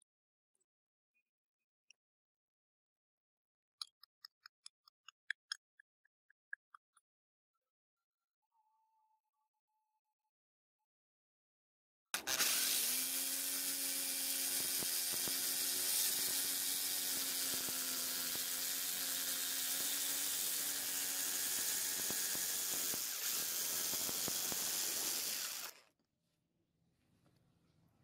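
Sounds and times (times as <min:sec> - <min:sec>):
electric jigsaw cutting wood: 0:12.2 - 0:25.9.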